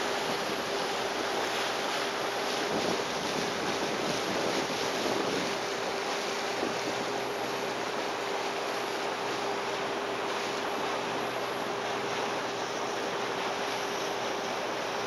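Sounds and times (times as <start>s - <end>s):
outboard motor running: 0.0s - 15.0s
water along hull: 0.0s - 15.0s
wind on microphone: 2.4s - 7.5s.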